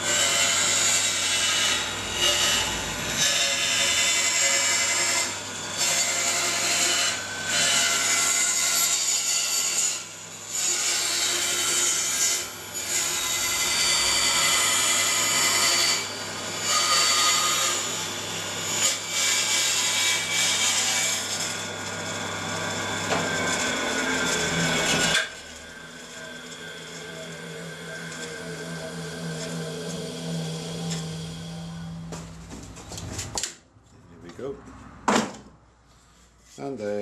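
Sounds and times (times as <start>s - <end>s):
band saw cutting wood: 0.0s - 32.3s
saw whine falling in pitch: 22.2s - 32.4s.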